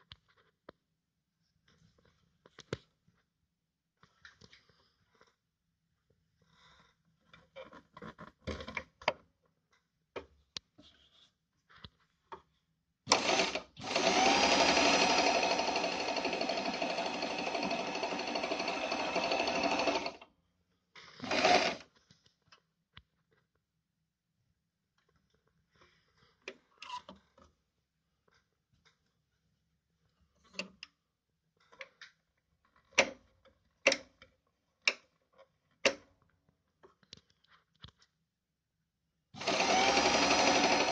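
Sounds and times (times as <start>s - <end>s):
sewing machine stitching: 13.1s - 20.2s, 21.2s - 21.9s, 39.4s - 40.9s.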